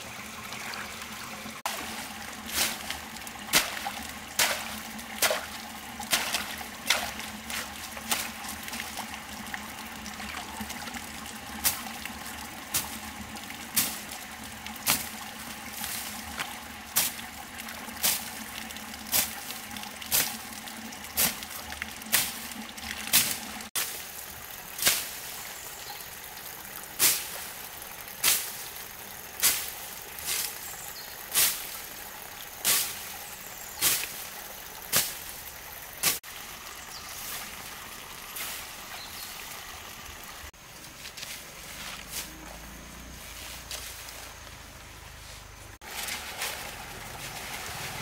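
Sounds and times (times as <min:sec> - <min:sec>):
trickle of running water: 0:00.0 - 0:48.0
machete slashing through grass: 0:34.9 - 0:35.2.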